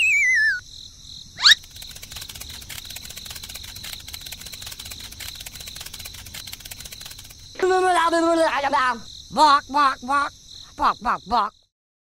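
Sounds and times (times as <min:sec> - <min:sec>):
falling wavering whistle: 0:00.0 - 0:00.6
crickets chirping: 0:00.0 - 0:11.7.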